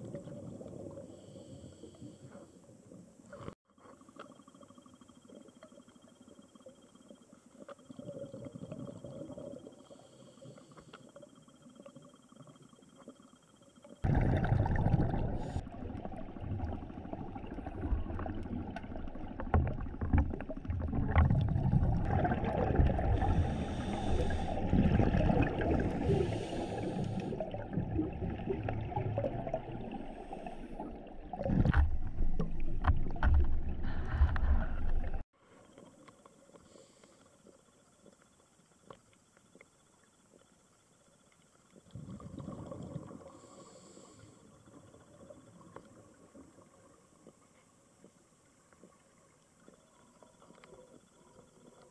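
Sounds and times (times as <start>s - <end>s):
muffled underwater rumble: 0.0s - 36.0s
faint hum: 0.0s - 51.9s
small underwater knocks: 31.6s - 34.5s.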